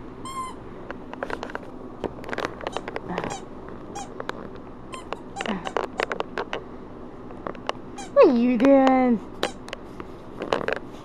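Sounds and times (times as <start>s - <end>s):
squeaky toy squeaks: 0.2s - 0.6s, 4.9s - 5.4s, 8.0s - 8.2s.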